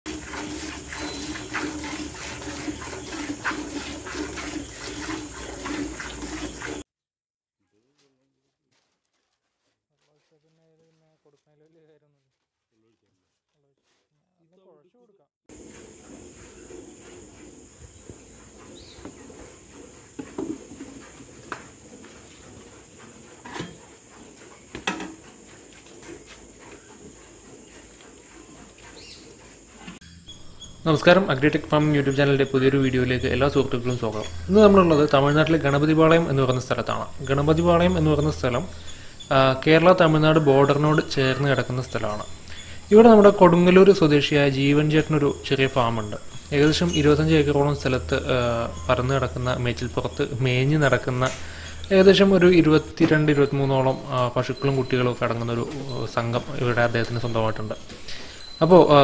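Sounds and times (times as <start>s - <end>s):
milk squirting into a metal bucket: 0.1s - 6.8s
insects chirring: 0.2s - 6.8s, 15.5s - 59.0s
metal pot knocks and clunks: 24.8s - 25.2s.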